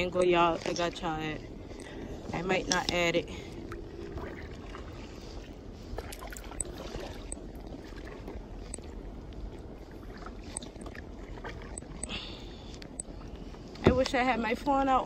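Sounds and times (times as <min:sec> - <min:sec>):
low steady rumble: 0:00.0 - 0:15.0
paddle dips in water: 0:03.6 - 0:12.8.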